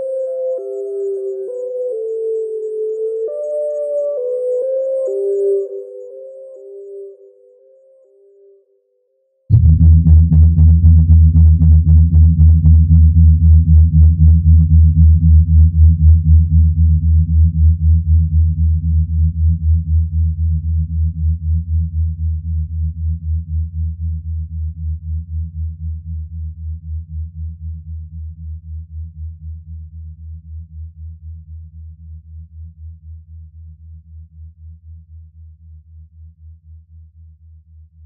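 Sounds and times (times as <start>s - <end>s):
pulsing synthesizer bass drone: 9.5s - 34.4s.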